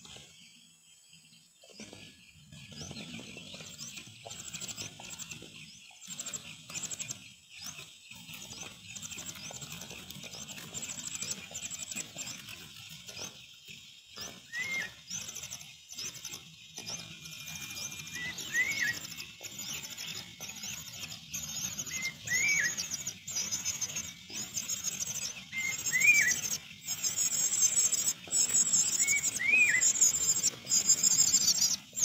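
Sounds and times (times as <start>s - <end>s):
chick high-pitched begging calls: 14.2s - 32.0s.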